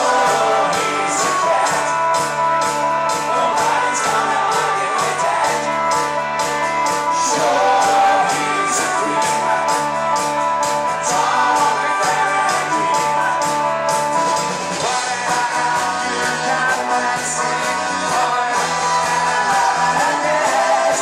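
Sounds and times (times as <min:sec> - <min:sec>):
lead singer singing: 0:00.0 - 0:13.7, 0:14.8 - 0:21.0
live rock band playing: 0:00.0 - 0:21.0.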